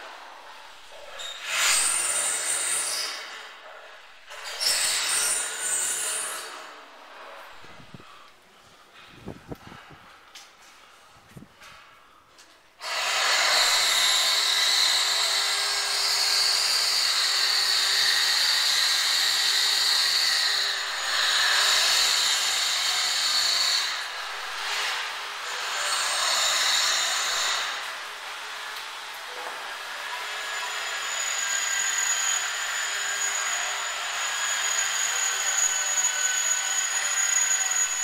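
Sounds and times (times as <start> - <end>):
power tool whining: 30.3 - 38.0.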